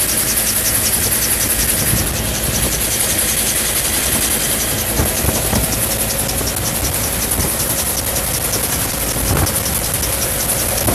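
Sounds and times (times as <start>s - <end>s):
helicopter engine and rotor: 0.0s - 10.9s
rotor blades beating: 0.0s - 10.9s.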